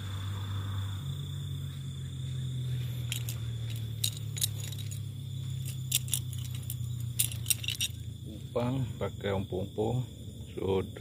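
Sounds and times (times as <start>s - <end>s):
steady low hum: 0.0s - 11.0s
light metallic clinks: 2.6s - 8.2s.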